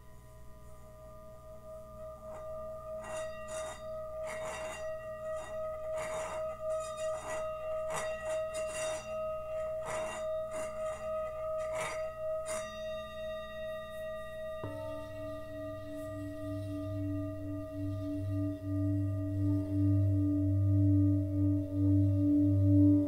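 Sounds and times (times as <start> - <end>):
singing bowl ringing tone: 0.0 - 23.0
stick rasping on bowl rim: 2.2 - 13.0.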